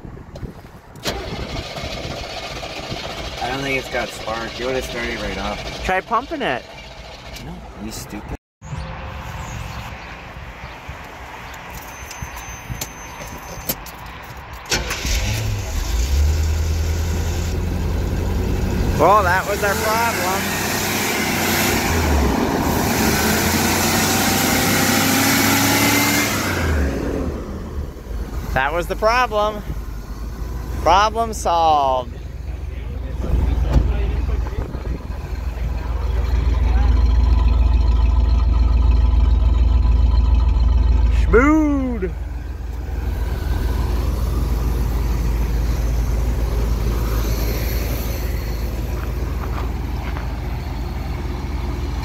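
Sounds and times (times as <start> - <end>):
car engine running: 1.1 - 8.2, 16.9 - 25.7, 26.8 - 52.0.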